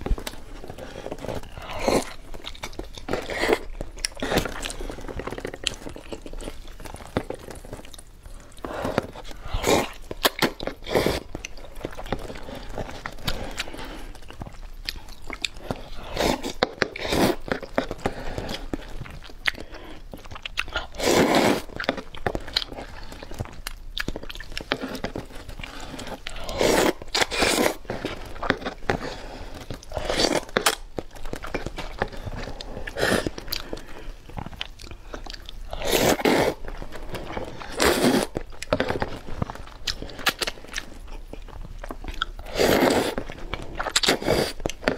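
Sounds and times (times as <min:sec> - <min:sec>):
chewing and wet mouth sounds: 0:00.0 - 0:44.9
slurping noodles: 0:08.6 - 0:11.3, 0:15.5 - 0:18.8, 0:20.8 - 0:21.9, 0:24.6 - 0:30.8, 0:31.8 - 0:34.4, 0:35.7 - 0:39.2, 0:42.4 - 0:44.9.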